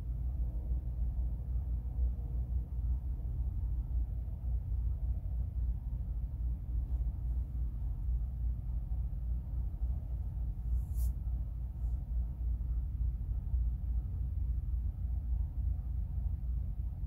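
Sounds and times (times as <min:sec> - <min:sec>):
steady low rumble: 0:00.0 - 0:17.0
faint hiss: 0:10.5 - 0:12.2.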